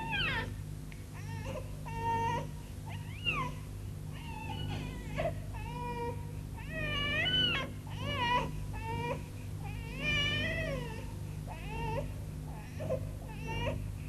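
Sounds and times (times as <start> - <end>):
steady low hum: 0.0 - 14.0
infant crying: 4.2 - 13.8.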